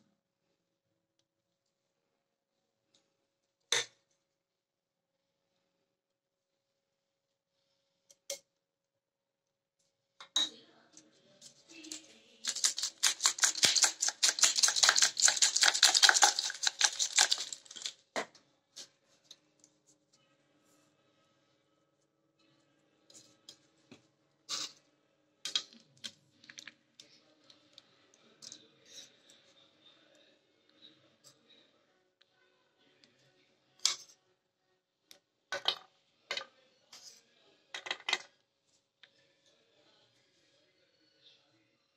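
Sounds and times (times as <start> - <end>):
plastic spice shaker rattling: 11.8 - 18.0
spoons clinking on bowls: 12.5 - 17.9.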